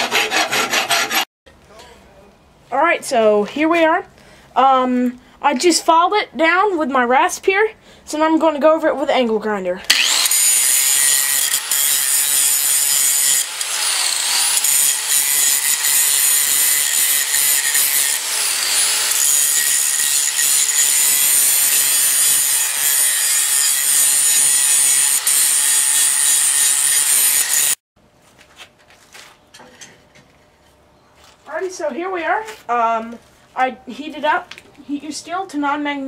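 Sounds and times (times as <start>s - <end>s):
angle grinder grinding steel: 9.9s - 27.8s.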